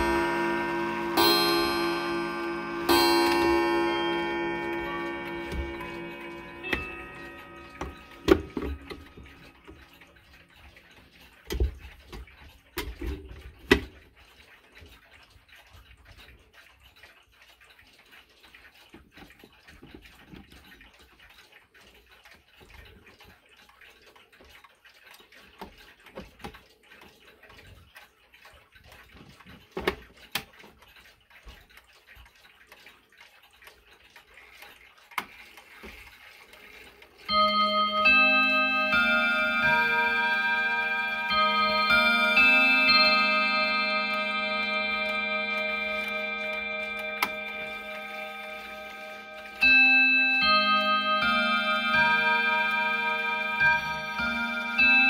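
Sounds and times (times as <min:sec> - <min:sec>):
wall clock chiming: 0:00.0 - 0:12.7, 0:31.8 - 0:55.0
clocks ticking faintly: 0:00.0 - 0:55.0.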